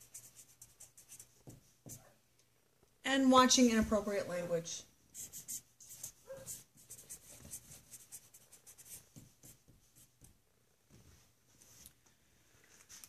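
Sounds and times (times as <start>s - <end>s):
pen scratching on paper: 0.0s - 2.1s, 5.2s - 10.2s.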